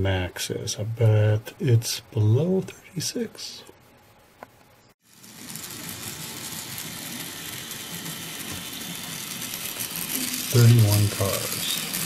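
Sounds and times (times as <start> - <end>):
model train motor whirring: 5.0 - 12.0
wheels rolling on track: 5.0 - 12.0.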